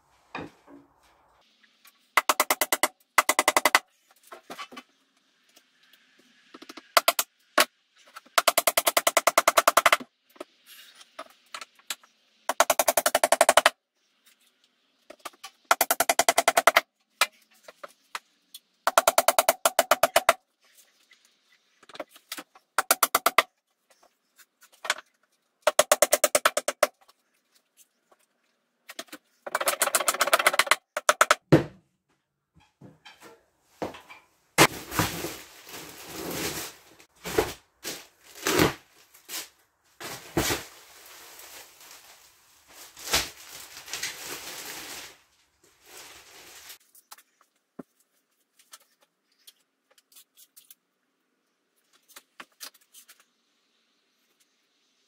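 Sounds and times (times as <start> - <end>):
rustling and handling noise: 26.8 - 29.5, 32.0 - 50.9.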